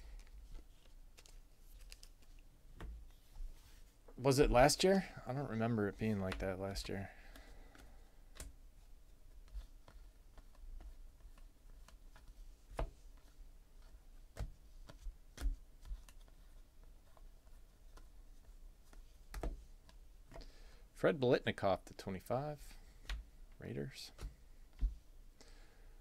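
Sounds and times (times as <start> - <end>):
trading cards flipping: 0.1 - 2.5.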